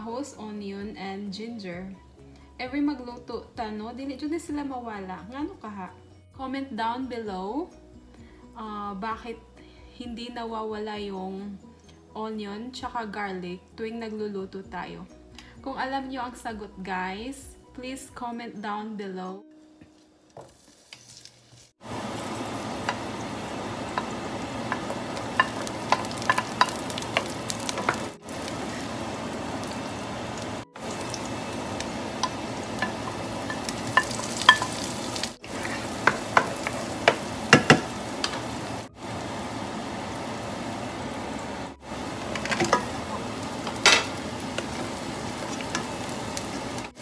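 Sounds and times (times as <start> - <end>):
vegetables sizzling in hot oil: 20.4 - 47.0
wooden spoon clicking on pan: 23.9 - 28.1, 36.0 - 38.4.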